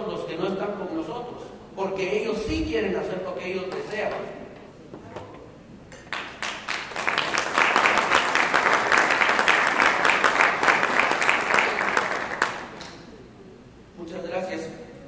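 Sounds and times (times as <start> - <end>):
audience applauding: 5.9 - 13.1.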